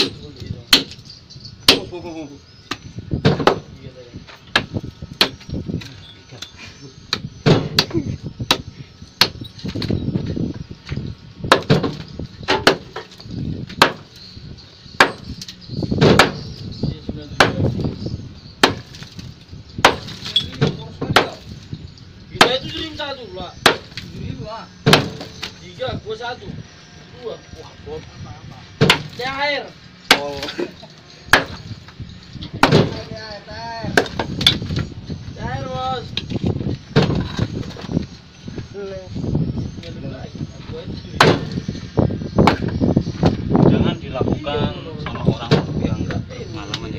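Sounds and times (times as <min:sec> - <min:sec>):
hammer striking concrete: 0:00.0 - 0:01.0, 0:01.6 - 0:02.0, 0:11.5 - 0:14.1, 0:15.0 - 0:15.4, 0:16.0 - 0:16.6, 0:17.4 - 0:17.8, 0:18.6 - 0:21.6, 0:22.4 - 0:24.1, 0:24.8 - 0:25.6, 0:28.8 - 0:29.4, 0:30.1 - 0:30.6, 0:31.3 - 0:31.7, 0:32.5 - 0:33.1, 0:33.8 - 0:34.8, 0:41.2 - 0:41.6, 0:42.4 - 0:43.4
concrete cracking: 0:18.6 - 0:21.7.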